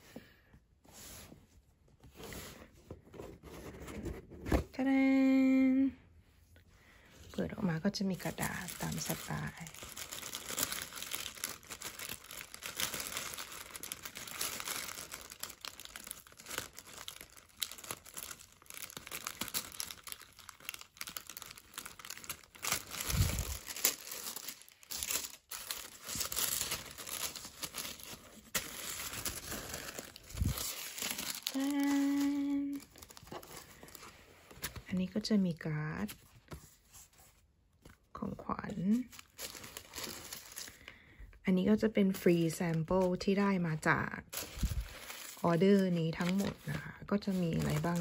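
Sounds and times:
tissue paper crinkling: 0:08.1 - 0:34.9, 0:39.0 - 0:40.9, 0:44.2 - 0:48.0.

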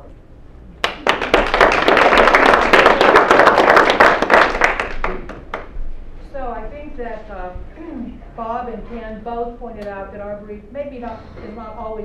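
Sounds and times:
audience applauding: 0:00.8 - 0:05.7.

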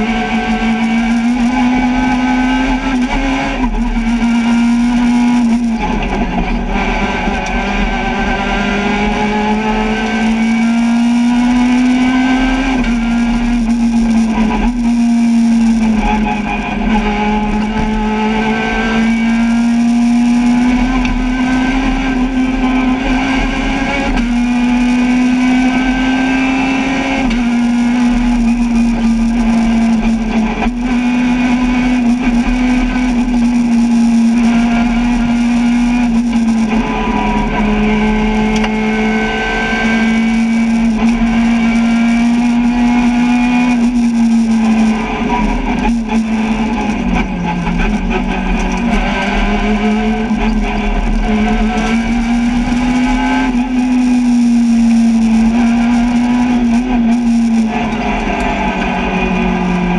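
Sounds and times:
rally car engine at high revs: 0:00.0 - 0:59.9.

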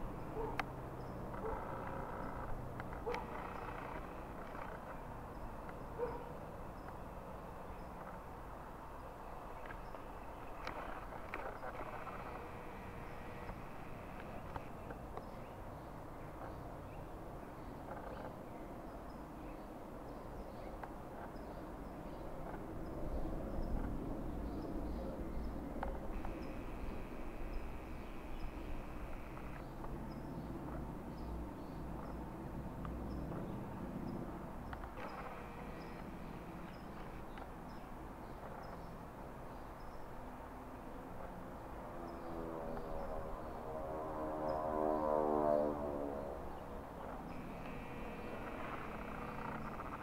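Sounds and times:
distant engines rumbling: 0:00.0 - 0:50.0
distant propeller plane drone: 0:00.0 - 0:50.0
small birds chirping: 0:09.0 - 0:32.3, 0:32.9 - 0:40.2.

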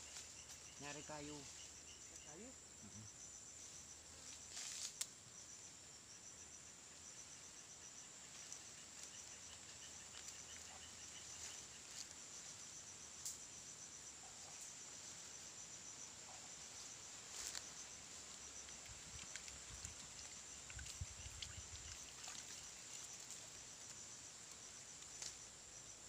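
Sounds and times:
high-pitched insect chirping: 0:00.0 - 0:26.0.

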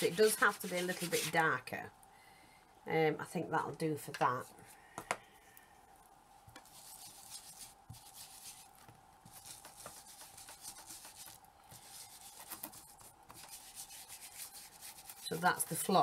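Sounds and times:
blending tool rubbing on card: 0:00.0 - 0:01.4, 0:06.7 - 0:16.0.

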